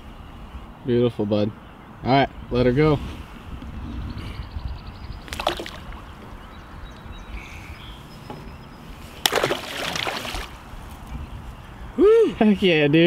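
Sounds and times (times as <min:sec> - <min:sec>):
fish splashing into water: 0:05.3 - 0:06.0, 0:09.2 - 0:10.6.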